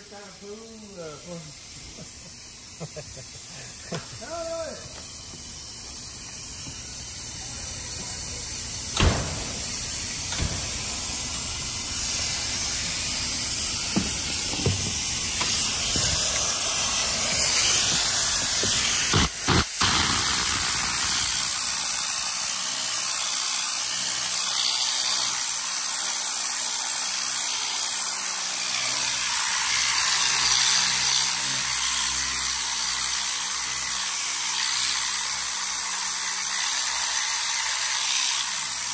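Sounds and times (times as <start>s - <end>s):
pressurised sprayer hissing: 0.0s - 24.3s.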